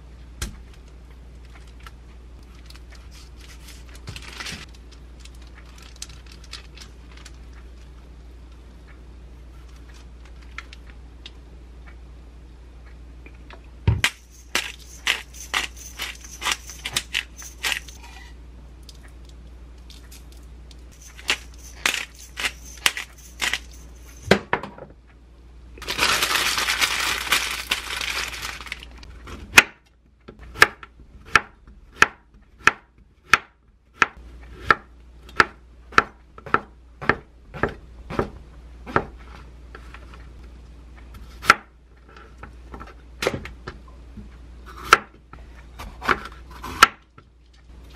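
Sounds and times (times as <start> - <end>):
paper crinkling: 2.5 - 7.5, 25.8 - 29.0
knife chopping on wooden board: 30.5 - 39.2.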